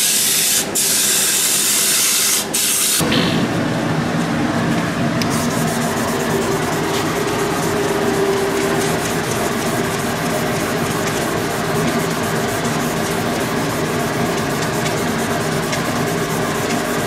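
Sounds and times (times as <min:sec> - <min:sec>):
wood lathe humming: 0:05.2 - 0:17.0
sandpaper rubbing on spinning wood: 0:05.3 - 0:17.0.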